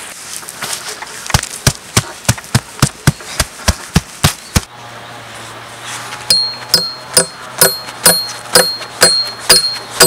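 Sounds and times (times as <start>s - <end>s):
blade chopping tree trunk: 1.3s - 4.7s, 6.3s - 10.0s.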